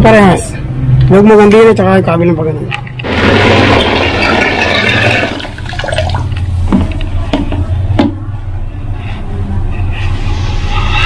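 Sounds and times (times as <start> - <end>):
water churning and splashing: 2.8 - 6.5.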